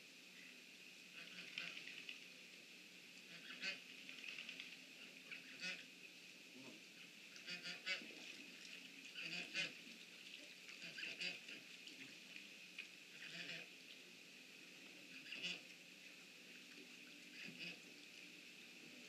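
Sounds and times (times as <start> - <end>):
waterfowl calling: 1.2 - 1.9, 3.3 - 3.8, 5.0 - 5.9, 7.3 - 8.1, 9.1 - 9.8, 10.8 - 11.6, 13.1 - 13.7, 15.1 - 15.7, 17.3 - 17.9.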